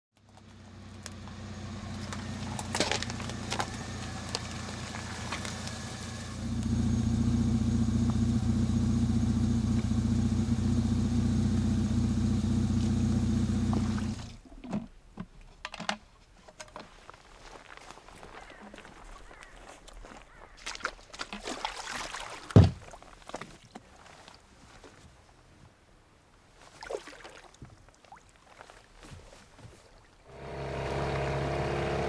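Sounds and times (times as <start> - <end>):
car engine idling: 0.3 - 14.4, 30.3 - 32.0.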